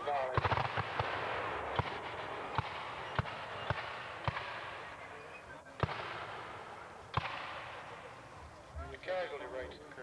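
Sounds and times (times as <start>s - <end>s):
steady noisy background: 0.0s - 10.0s
musket shots: 0.3s - 4.8s, 5.8s - 7.9s.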